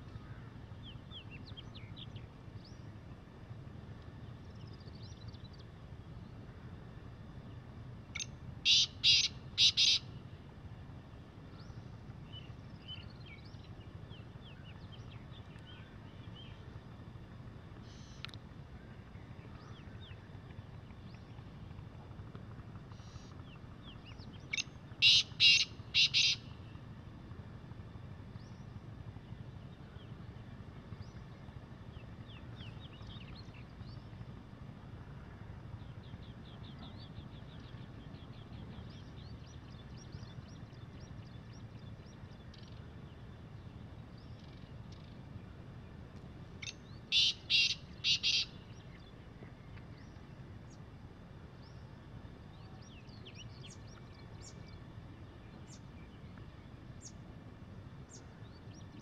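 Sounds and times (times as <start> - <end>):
small birds chirping: 8.1 - 10.1, 23.0 - 26.5, 46.6 - 50.8
francolin harsh call: 8.6 - 10.1, 25.0 - 26.5, 46.6 - 48.6.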